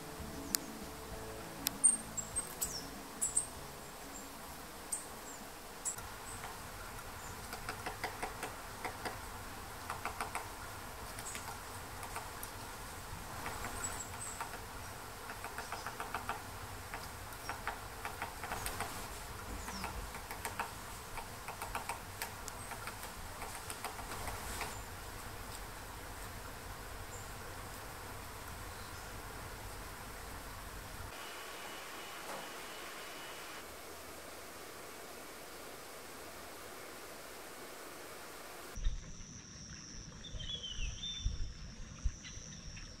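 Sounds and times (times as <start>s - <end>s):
thin high bird calls: 1.7s - 8.6s, 13.4s - 25.0s
woodpecker tapping on bark: 6.0s - 12.7s, 13.3s - 24.9s.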